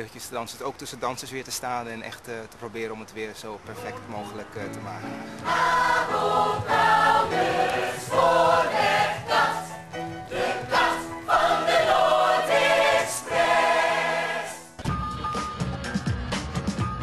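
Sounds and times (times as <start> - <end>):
group singing in harmony: 5.2 - 14.8.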